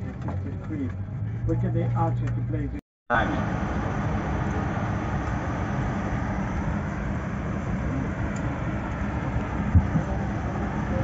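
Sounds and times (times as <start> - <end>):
aircraft cabin air rush and hum: 3.1 - 11.0.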